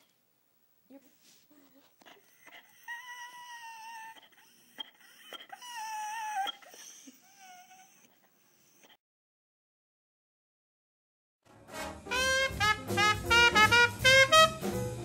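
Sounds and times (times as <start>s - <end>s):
dog howling: 2.2s - 8.1s.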